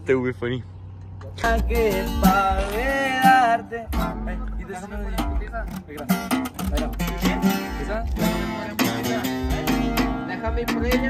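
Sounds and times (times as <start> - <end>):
two acoustic guitars playing: 1.0 - 11.0.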